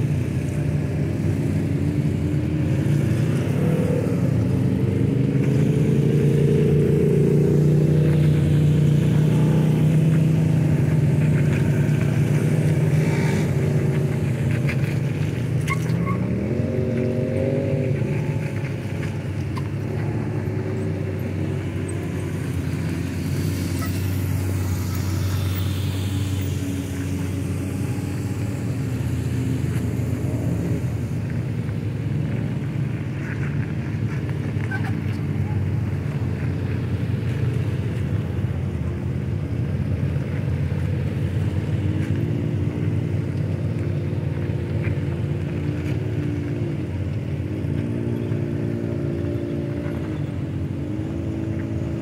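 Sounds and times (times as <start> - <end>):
engine revving: 0.0 - 38.5
off-road vehicle engines droning: 0.0 - 52.0.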